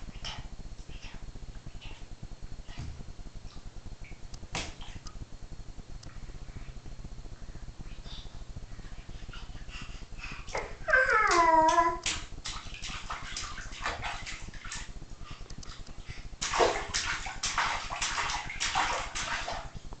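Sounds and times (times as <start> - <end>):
baby splashing bathwater: 9.0 - 19.8
baby crying: 10.8 - 12.0.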